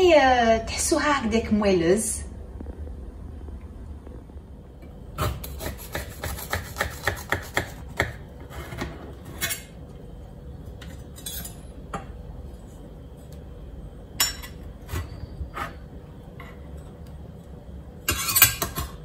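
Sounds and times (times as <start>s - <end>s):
knife sawing through brownie: 5.5s - 7.8s.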